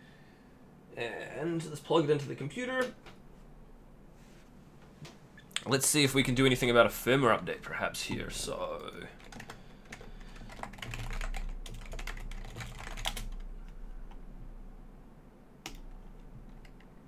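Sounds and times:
computer keyboard typing: 9.2 - 13.8, 15.6 - 17.0.

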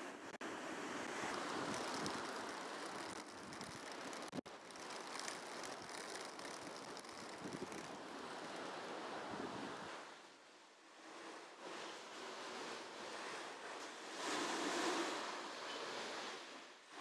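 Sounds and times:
surf on pebble beach: 0.5 - 10.3
wind noise on microphone: 0.8 - 10.1.

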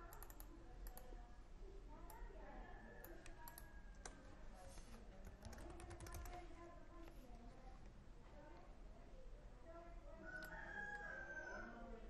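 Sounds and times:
computer keyboard typing clicks: 0.0 - 1.1, 3.0 - 4.2, 5.2 - 6.4.

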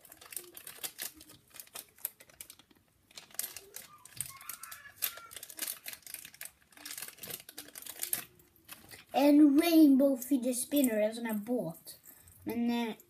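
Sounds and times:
plastic packaging crinkling: 0.0 - 9.2.

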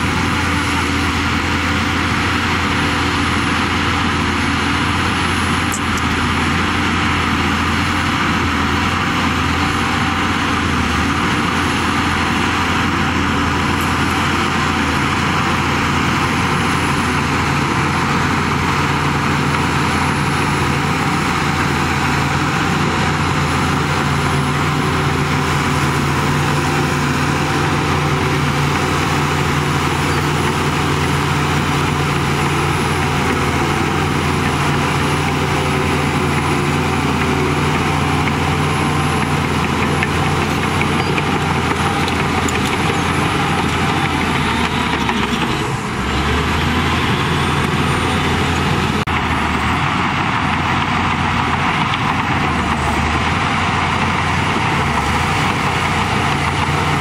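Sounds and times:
bulldozer diesel engine drone: 0.0 - 57.0.

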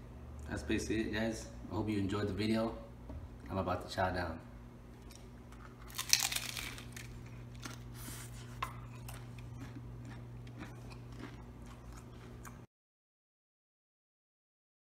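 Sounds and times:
taco shell crunch: 5.0 - 12.6
chewing with crunches: 5.0 - 12.7.

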